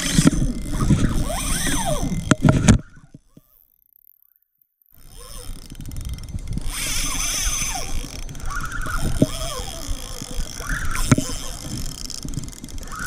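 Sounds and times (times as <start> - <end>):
microphone handling rumble and knocks: 0.0 - 3.2, 7.7 - 13.0.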